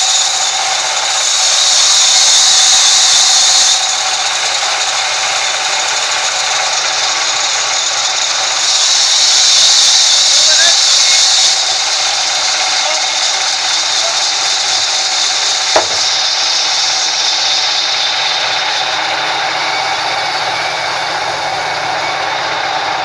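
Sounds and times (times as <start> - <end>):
band saw cutting through log: 0.0 - 23.0
sharp knock: 15.7 - 16.3.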